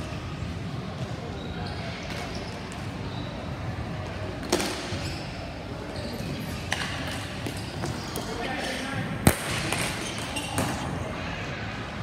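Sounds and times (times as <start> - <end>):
hockey sticks clacking on ball: 6.6 - 10.9.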